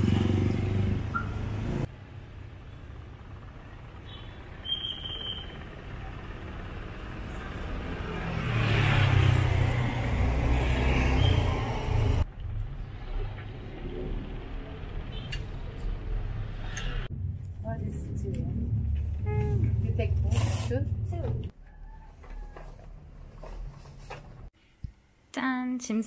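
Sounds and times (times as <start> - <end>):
vehicle engine passing: 0.0 - 2.2, 5.5 - 21.5.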